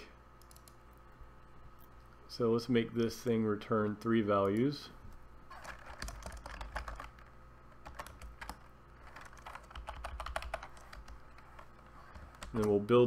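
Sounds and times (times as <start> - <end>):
computer keyboard typing: 0.4 - 0.8, 5.5 - 12.8.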